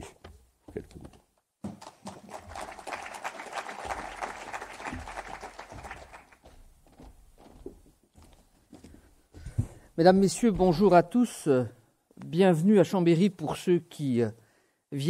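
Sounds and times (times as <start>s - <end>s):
audience applauding: 1.7s - 6.5s.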